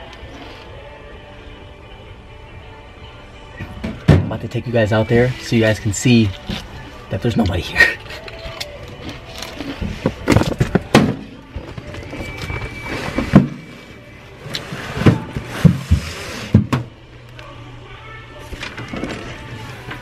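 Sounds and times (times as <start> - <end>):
background music: 0.0 - 20.0
knocks and thumps: 3.6 - 4.5.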